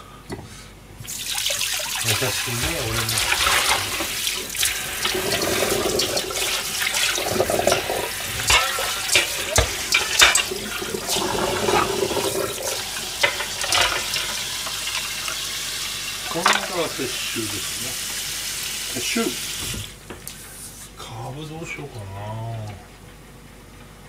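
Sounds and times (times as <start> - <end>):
tap water running into sink: 1.0 - 20.1
bowls clinking and knocking: 2.6 - 15.4.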